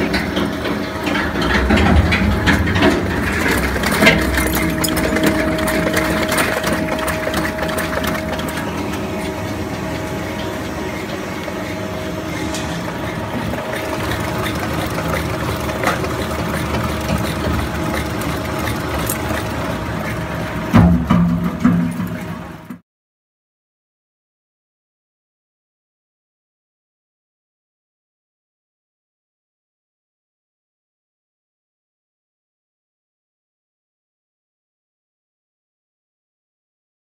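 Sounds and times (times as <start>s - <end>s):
scrap metal crackling and clattering: 0.0s - 22.6s
shredder machine hum: 0.0s - 22.8s.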